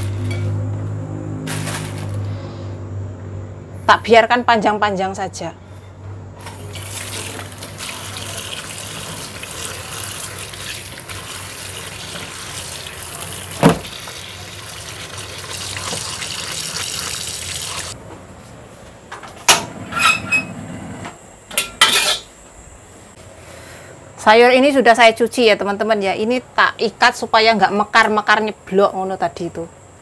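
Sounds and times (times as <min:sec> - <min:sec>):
tap water running into sink: 0:06.6 - 0:18.0.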